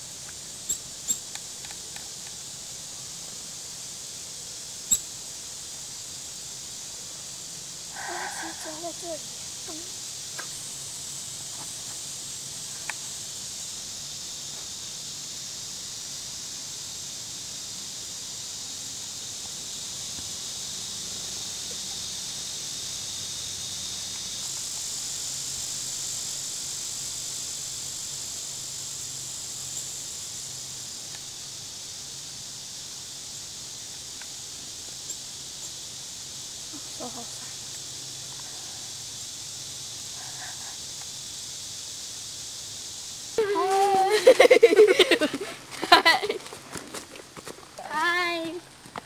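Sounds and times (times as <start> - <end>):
insects droning: 0.0 - 49.0.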